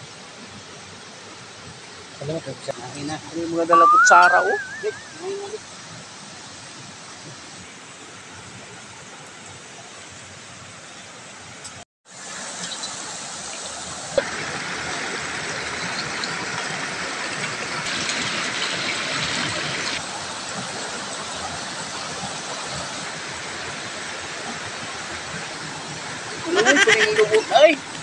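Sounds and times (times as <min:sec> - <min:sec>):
stream rushing over stones: 0:11.4 - 0:28.0.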